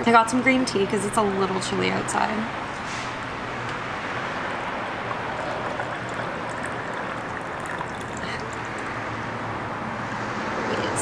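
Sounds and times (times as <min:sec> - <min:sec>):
constant background noise: 0:00.0 - 0:11.0
tea trickling into a cup: 0:04.5 - 0:09.1.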